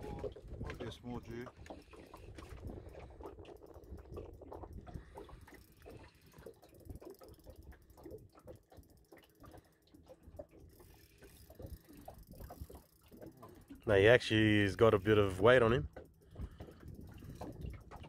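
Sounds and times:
fishing reel clicking: 0:10.6 - 0:13.7.

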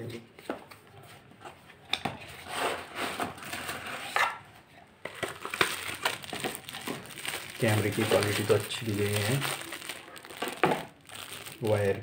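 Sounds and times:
plastic bag rustling: 0:05.1 - 0:12.0.

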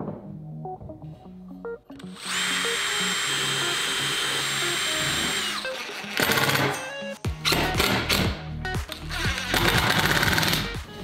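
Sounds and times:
background music: 0:00.0 - 0:11.0
cordless drill whining: 0:02.0 - 0:07.8, 0:09.0 - 0:10.6.

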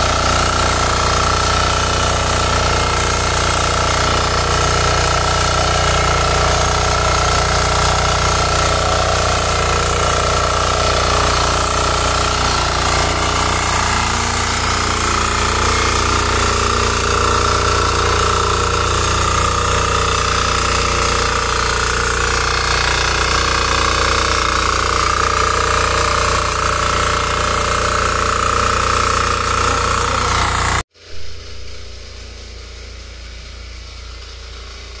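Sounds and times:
power tiller engine running: 0:00.0 - 0:35.0
low hum: 0:31.0 - 0:35.0.

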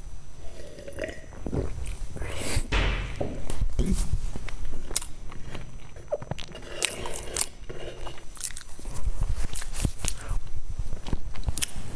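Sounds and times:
chewing crunchy food: 0:04.4 - 0:11.9.

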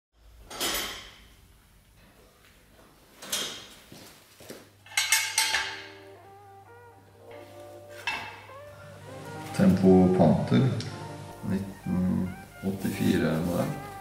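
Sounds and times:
metallic tool clanks: 0:04.9 - 0:06.0
music: 0:05.5 - 0:14.0.

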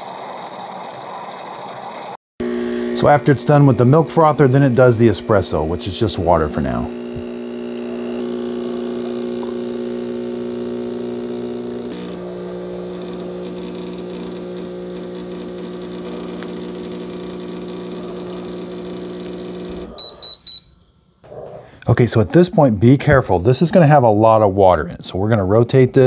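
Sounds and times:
espresso machine pump humming: 0:00.0 - 0:20.3.

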